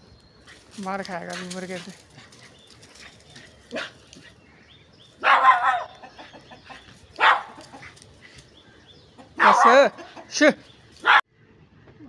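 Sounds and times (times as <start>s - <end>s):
rooster and dog cries: 5.2s - 7.9s, 9.2s - 10.4s.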